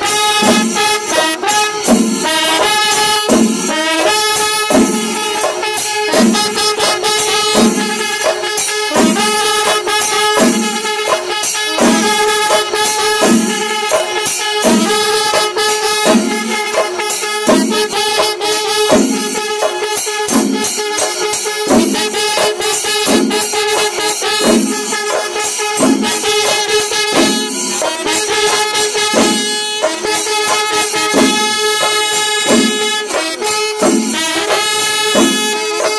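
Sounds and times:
cymbals clashing: 0.0 - 35.9
drums playing fast: 0.0 - 35.9
held horn tone: 0.0 - 35.9.

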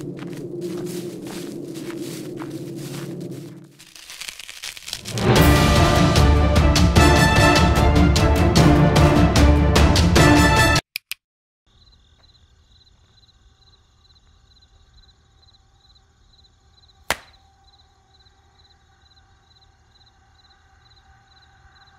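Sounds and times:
low hum: 0.0 - 3.9
crickets chirping: 0.0 - 5.2, 11.7 - 21.9
music: 5.1 - 10.8
short clicks: 10.9 - 11.2
hand slapping face: 17.1 - 17.4.

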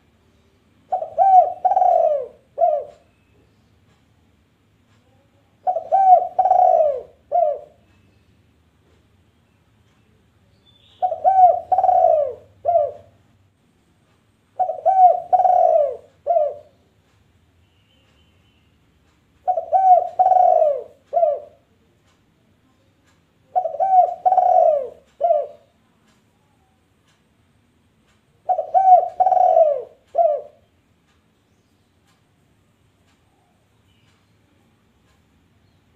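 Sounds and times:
dove cooing: 0.9 - 3.1, 5.6 - 7.8, 11.0 - 13.2, 14.6 - 16.8, 19.4 - 21.6, 23.5 - 25.7, 28.4 - 30.6.

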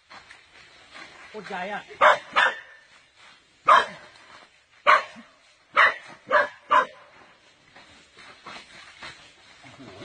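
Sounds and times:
dog barking: 2.0 - 2.8, 3.6 - 4.1, 4.8 - 7.1.

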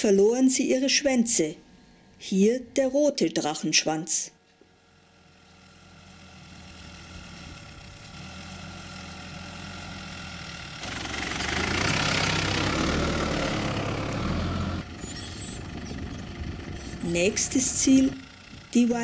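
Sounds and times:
car engine approaching: 4.8 - 19.0.

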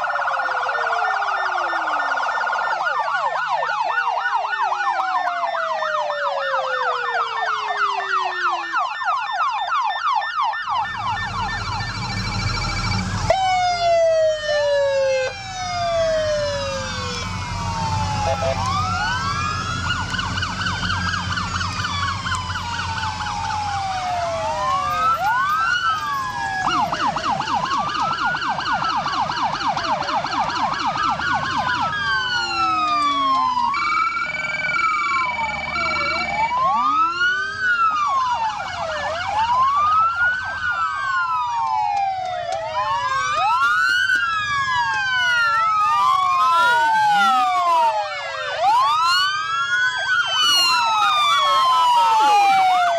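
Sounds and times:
emergency vehicle sirens wailing: 0.0 - 52.9
siren fast yelp: 0.0 - 52.9
siren steady blaring tone: 0.0 - 52.9
low engine rumble: 10.7 - 47.8.

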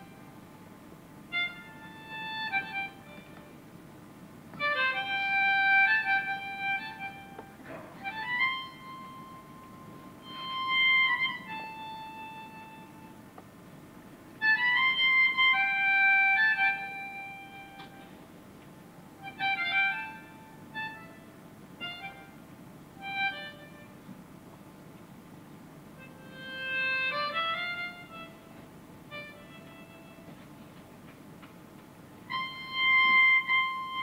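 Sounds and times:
melodica slow melody: 0.0 - 0.4, 1.2 - 3.6, 4.6 - 13.3, 14.4 - 18.2, 19.2 - 24.1, 26.0 - 30.6, 32.2 - 34.0.

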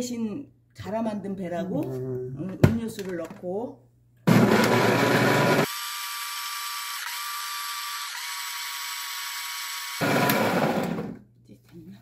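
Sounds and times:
food chopper motor grinding: 4.3 - 11.2.

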